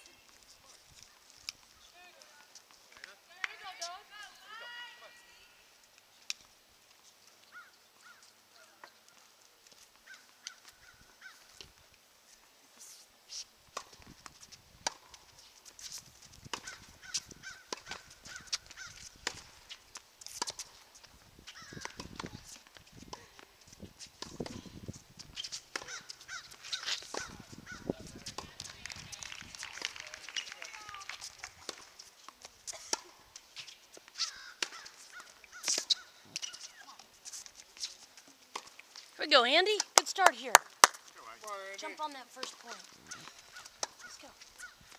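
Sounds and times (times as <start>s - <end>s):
tennis balls struck and bouncing: 13.7s - 20.8s, 21.6s - 23.5s, 24.1s - 24.7s, 25.4s - 28.8s, 29.5s - 37.1s, 37.8s - 38.8s, 41.8s - 44.9s.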